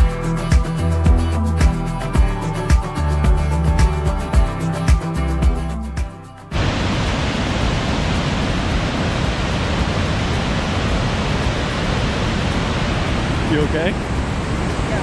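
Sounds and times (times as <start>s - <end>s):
waterfall and rapids rushing: 6.5s - 15.0s.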